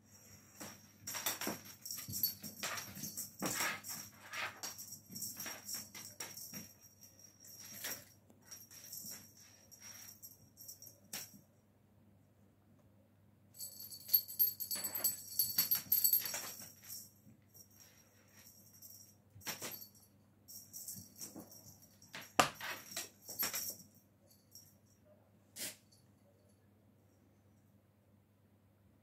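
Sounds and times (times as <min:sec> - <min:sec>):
small bells jingling: 0:00.2 - 0:11.4, 0:13.6 - 0:24.9.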